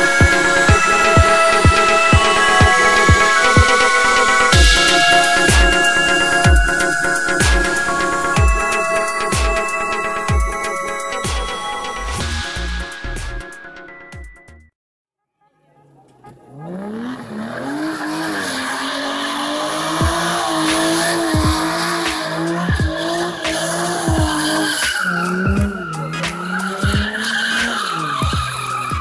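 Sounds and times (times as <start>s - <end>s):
tyres squealing: 15.8s - 29.0s
car engine at high revs: 16.1s - 29.0s.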